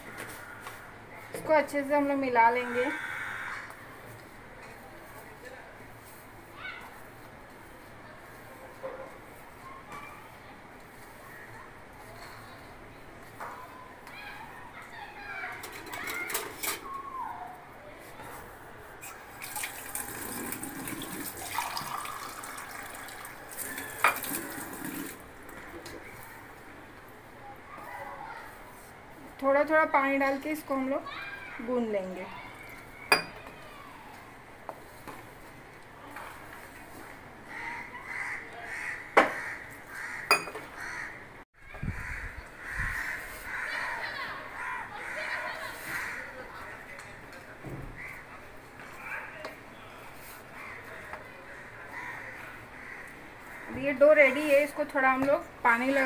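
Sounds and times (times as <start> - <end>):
tap water running into container: 19.4 - 25.2
sharp clinks against steel bowl: 40.3 - 40.6.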